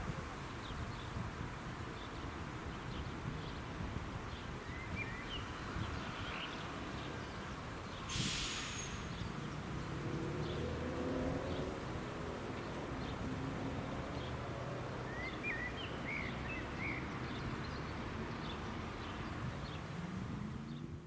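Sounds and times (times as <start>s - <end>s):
short hissing burst: 8.1s - 9.2s.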